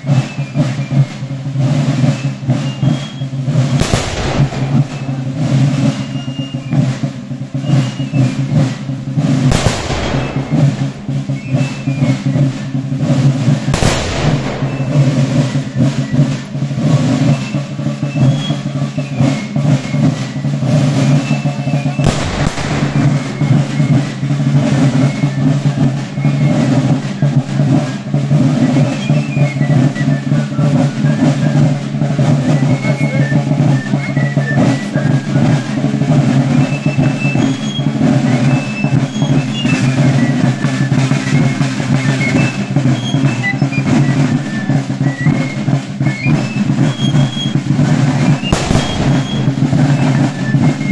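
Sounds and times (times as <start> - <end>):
side drums beating: 0.0 - 50.9
shrill fife melody: 2.5 - 6.9, 9.5 - 29.2, 30.7 - 50.9
sharp bang: 3.7 - 6.4, 9.4 - 12.8, 13.4 - 16.5, 21.2 - 25.8, 46.8 - 50.9.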